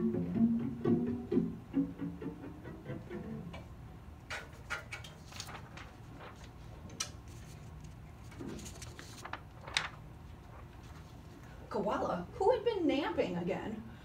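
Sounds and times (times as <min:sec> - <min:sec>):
paper clicks and rustles: 0:04.3 - 0:11.2
flip-chart page turning: 0:04.6 - 0:11.3.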